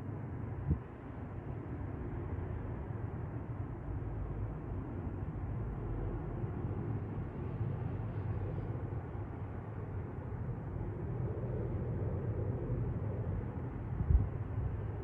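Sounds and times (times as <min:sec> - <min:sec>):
jet airliner flying overhead: 0:00.0 - 0:15.0.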